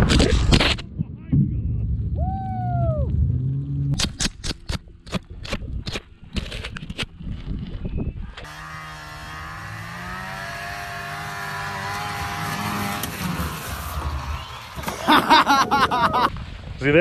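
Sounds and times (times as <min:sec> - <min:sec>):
wind and handling noise on microphone: 0:03.9 - 0:08.5
snowmobile engine running: 0:08.4 - 0:16.1.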